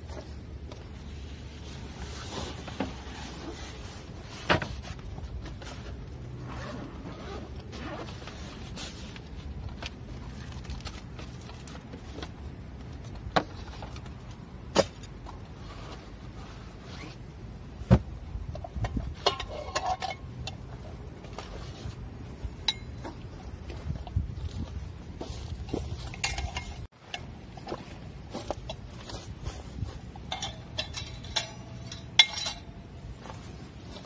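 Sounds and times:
light metal clinks: 0:22.6 - 0:23.2, 0:25.7 - 0:27.4, 0:30.2 - 0:33.0.

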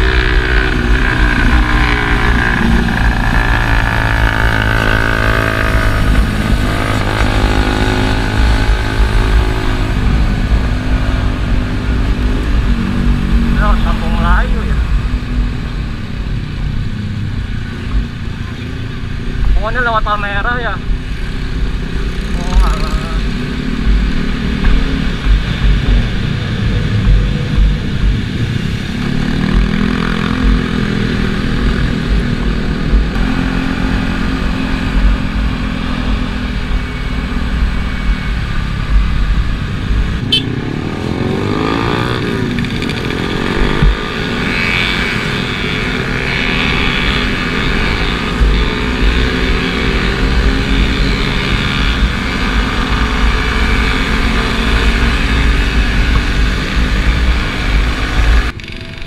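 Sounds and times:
motorcycle engine running: 0:00.0 - 0:19.6, 0:20.8 - 0:59.0
other motorcycles: 0:00.0 - 0:59.0
wind rush on microphone: 0:20.9 - 0:58.7.

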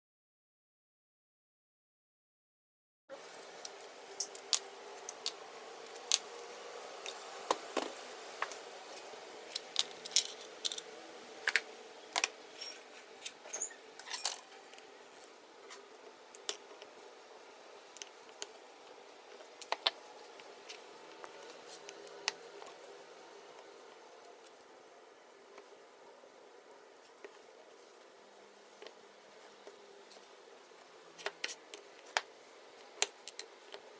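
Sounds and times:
faint steady hum: 0:03.1 - 0:33.9
small parts clicking and tapping: 0:07.0 - 0:14.9, 0:17.9 - 0:22.8, 0:31.2 - 0:33.9.

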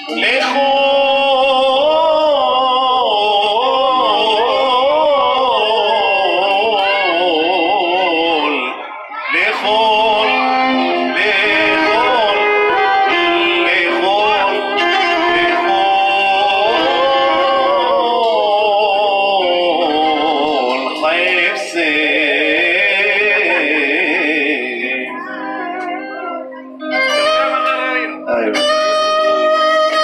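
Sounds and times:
man singing into a microphone: 0:00.0 - 0:25.8
keyboard: 0:00.0 - 0:30.0
violin: 0:09.3 - 0:22.6, 0:23.2 - 0:30.0.

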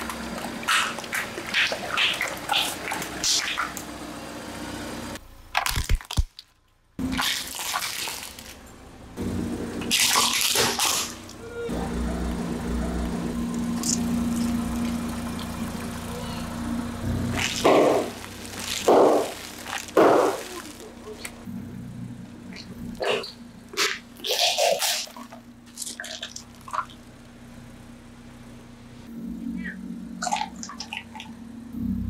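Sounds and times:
low engine hum: 0:00.0 - 0:05.6, 0:07.0 - 0:24.3, 0:24.9 - 0:32.0
water balloons bursting: 0:09.8 - 0:11.4, 0:17.1 - 0:21.4.

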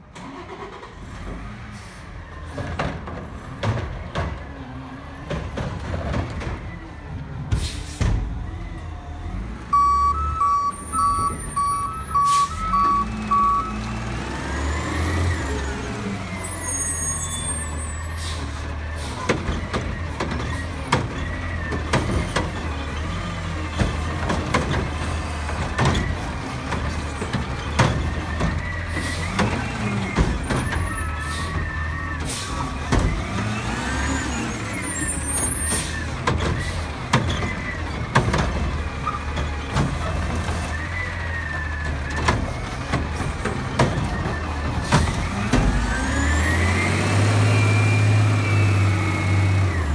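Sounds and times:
garbage truck engine revving: 0:00.0 - 0:49.9
air brakes hissing: 0:07.5 - 0:08.3, 0:11.4 - 0:12.7, 0:16.3 - 0:19.3, 0:31.1 - 0:32.8.

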